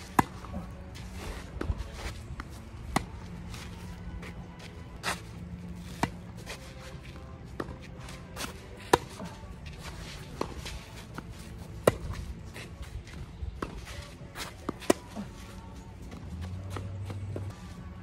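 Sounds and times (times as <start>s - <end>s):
tennis ball bouncing: 0.0s - 0.7s, 2.4s - 3.3s, 5.8s - 6.2s, 8.4s - 9.4s, 10.3s - 12.3s
shoes scuffing on court: 0.0s - 17.8s.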